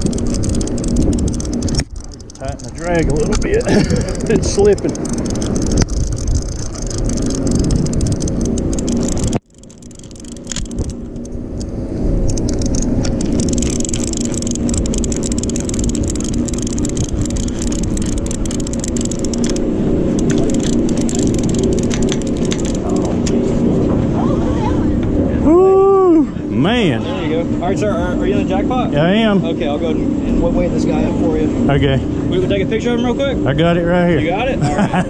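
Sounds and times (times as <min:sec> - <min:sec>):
light clicking and rattling: 0:00.0 - 0:23.4
boat engine running: 0:00.0 - 0:25.7, 0:26.3 - 0:35.0.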